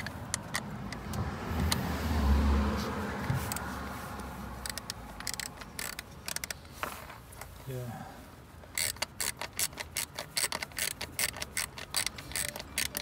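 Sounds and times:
hand ratchet clicking: 0:00.0 - 0:01.8, 0:04.6 - 0:06.7, 0:08.6 - 0:13.0.

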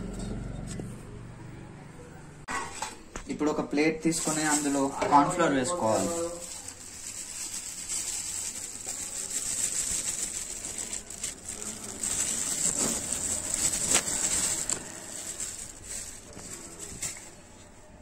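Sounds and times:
plastic bag crinkling: 0:04.0 - 0:18.0.

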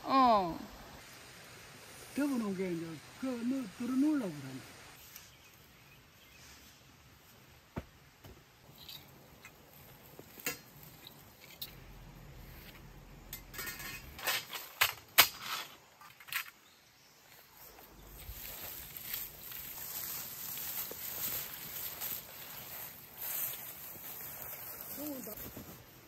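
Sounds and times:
dry weeds rustling: 0:08.6 - 0:26.0.

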